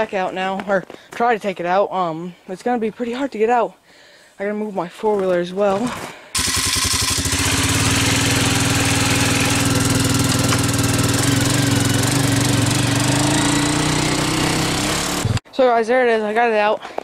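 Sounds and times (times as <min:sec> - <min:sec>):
atv engine running: 0:05.8 - 0:15.4.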